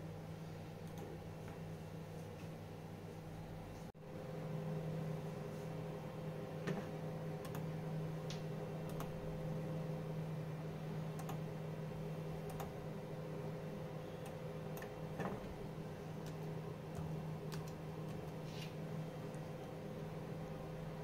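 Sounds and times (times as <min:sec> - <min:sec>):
steady low hum: 0:00.0 - 0:21.0
laptop keystrokes and clicks: 0:08.9 - 0:09.2, 0:11.2 - 0:11.4, 0:12.4 - 0:12.8, 0:16.2 - 0:18.4.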